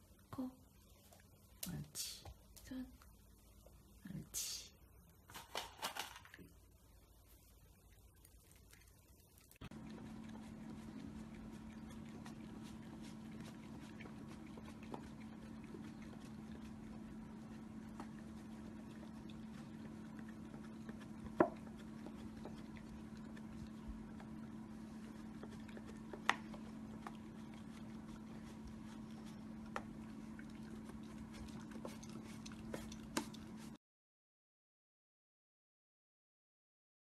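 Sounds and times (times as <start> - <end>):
steady low hum: 0.0 - 33.8
dog licking plastic cup: 8.3 - 33.7.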